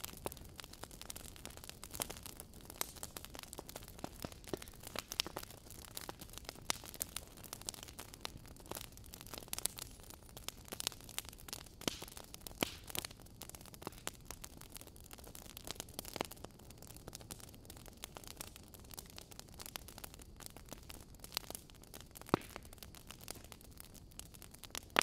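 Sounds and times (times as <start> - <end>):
wood fire crackling: 0.0 - 25.0.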